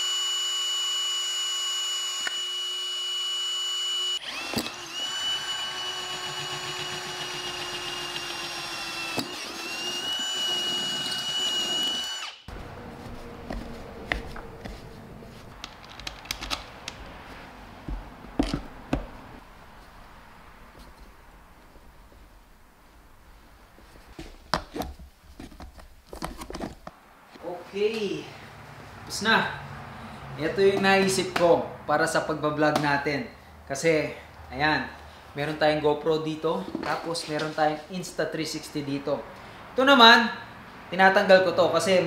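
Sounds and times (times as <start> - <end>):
cordless drill whining: 0.0 - 12.6.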